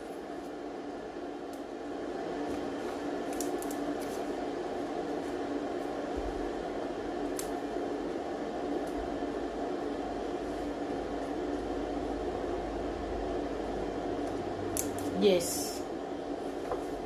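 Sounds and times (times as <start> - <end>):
steady background hum: 0.0 - 17.0
stems snapping: 3.3 - 4.2, 7.2 - 7.6, 14.2 - 15.2.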